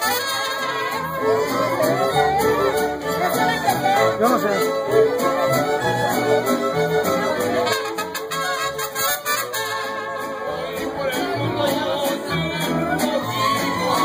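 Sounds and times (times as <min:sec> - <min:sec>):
trumpets: 0:00.0 - 0:10.6
mariachi band playing: 0:00.0 - 0:14.0
violins: 0:00.0 - 0:14.0.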